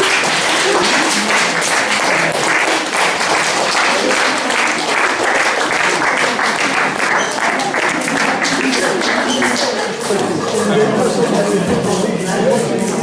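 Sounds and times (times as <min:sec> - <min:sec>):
crowd clapping: 0:00.0 - 0:11.5
voices: 0:03.8 - 0:13.0.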